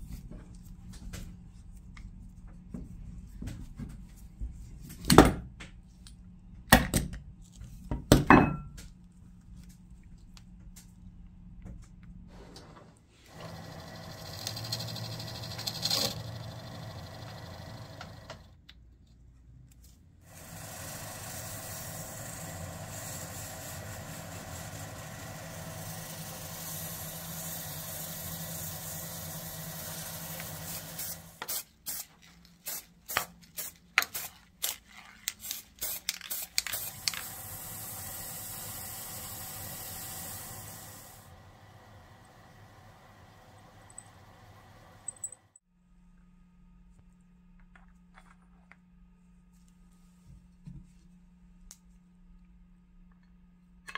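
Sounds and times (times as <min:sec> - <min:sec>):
metal lathe humming: 0:13.3 - 0:18.5.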